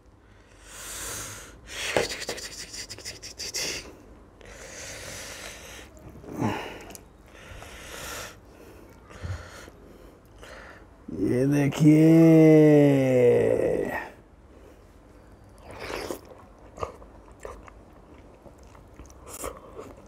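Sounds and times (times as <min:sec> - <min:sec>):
person breathing: 0:00.2 - 0:01.8, 0:03.7 - 0:11.0.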